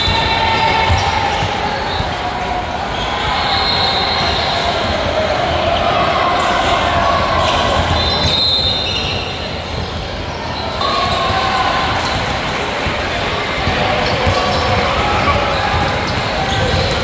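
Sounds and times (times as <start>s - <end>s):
basketball bouncing on court: 0.0s - 2.2s, 9.0s - 10.1s, 10.8s - 17.0s.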